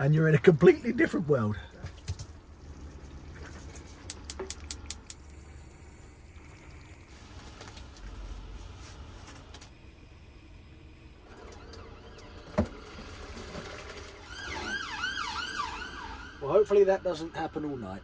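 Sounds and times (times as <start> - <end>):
low hum: 0.0 - 18.0
sharp clicks: 4.0 - 5.4.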